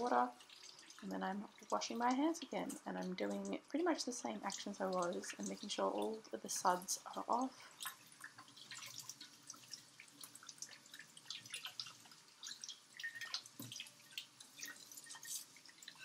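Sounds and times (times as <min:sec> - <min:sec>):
tap water splashing into sink: 0:04.5 - 0:16.0.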